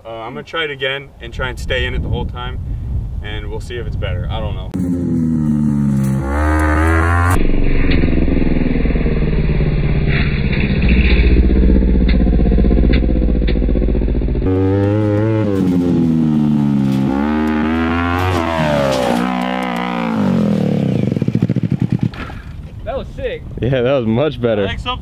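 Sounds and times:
buggy engine revving: 4.7s - 22.7s.

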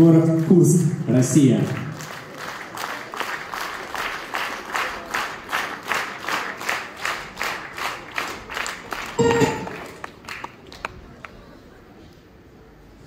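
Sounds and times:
audience clapping in rhythm: 0.0s - 11.4s
loud steady tone burst: 9.2s - 10.0s.

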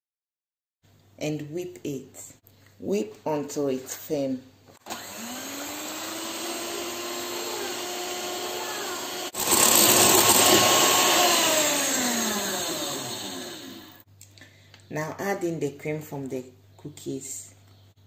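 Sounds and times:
electric hand mixer whipping cream: 4.9s - 14.0s.

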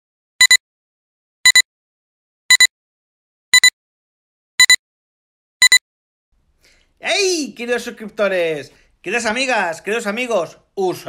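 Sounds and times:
electronic double beeps: 4.6s - 4.8s.

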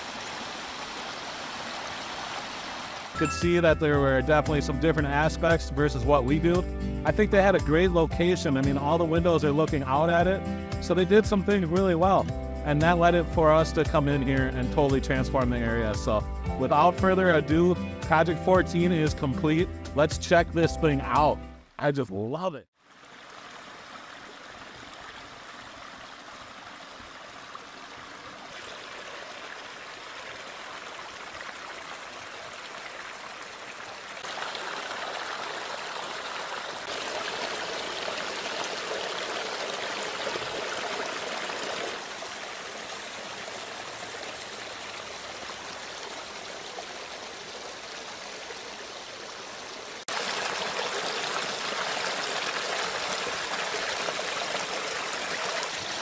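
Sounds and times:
waterfall splashing over stones: 0.0s - 3.3s, 22.8s - 56.0s.

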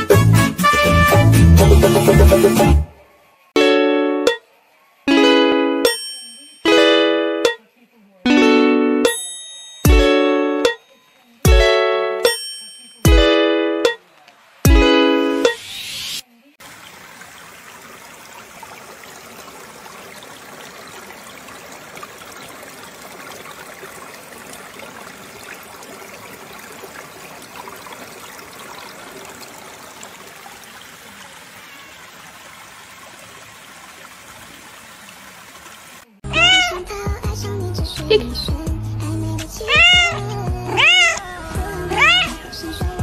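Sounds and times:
stream trickling over rocks: 16.5s - 36.2s.

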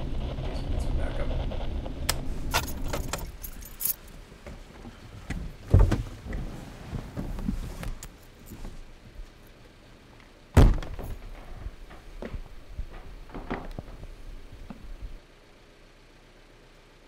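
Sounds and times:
rustling of clothes and seat: 1.9s - 10.2s
heavy truck door thunks: 5.3s - 6.3s
door slam: 10.6s - 14.3s.

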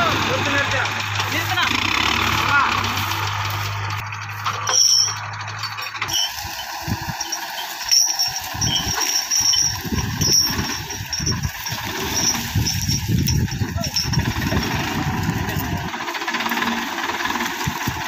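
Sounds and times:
tractor diesel engine running: 0.0s - 18.0s.

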